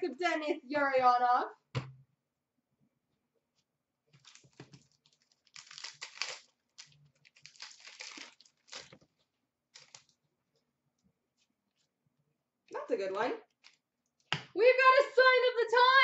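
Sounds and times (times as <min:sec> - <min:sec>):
foil wrapper crinkling: 0:04.2 - 0:10.2, 0:13.5 - 0:13.8.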